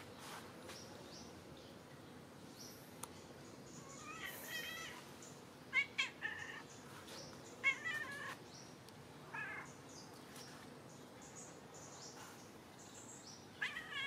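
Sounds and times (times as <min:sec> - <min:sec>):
cat meowing: 0:13.6 - 0:14.0.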